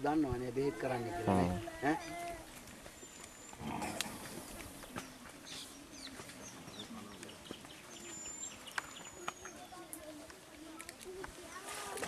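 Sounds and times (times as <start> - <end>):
birds chirping and whistling: 3.0 - 9.9.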